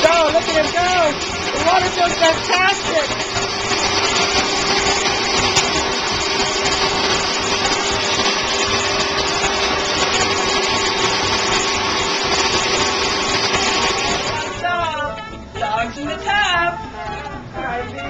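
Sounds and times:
hose water spraying: 0.0s - 15.5s
steady hum: 0.0s - 18.0s.

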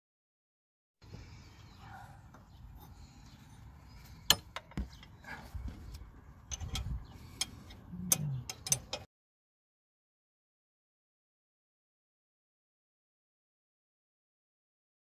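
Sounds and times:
metal spanner clicking and clinking: 6.5s - 9.1s.

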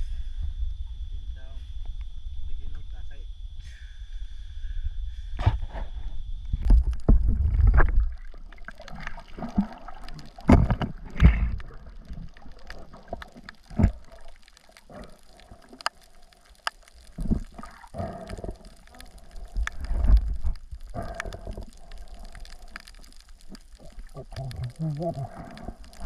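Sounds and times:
water sloshing and gurgling: 5.4s - 26.0s
sharp clicks: 12.6s - 17.5s.

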